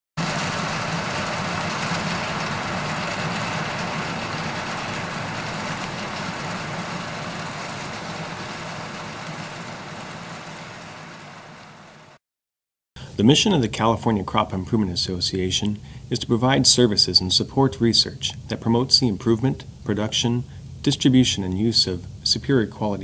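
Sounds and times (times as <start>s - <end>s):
combine harvester running: 0.2s - 12.2s.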